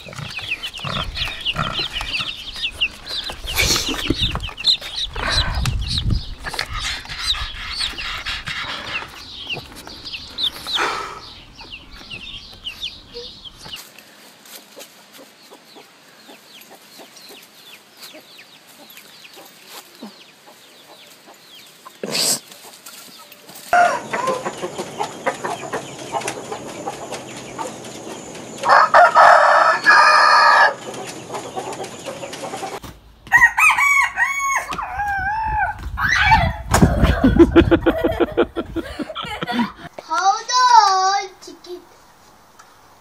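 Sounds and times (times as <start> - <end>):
chickens clucking: 0.0 - 33.0, 34.8 - 40.7
rooster crowing: 23.7 - 24.5, 28.6 - 30.8, 33.3 - 35.7.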